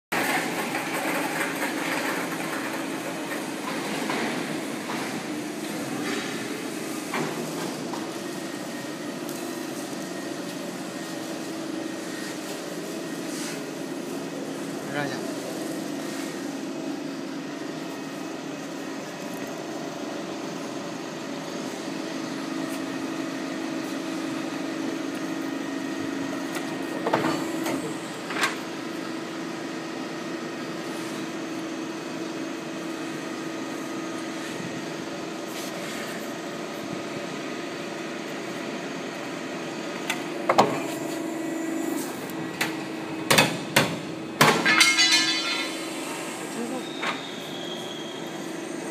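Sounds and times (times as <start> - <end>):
sharp metal clanks: 44.4 - 45.9.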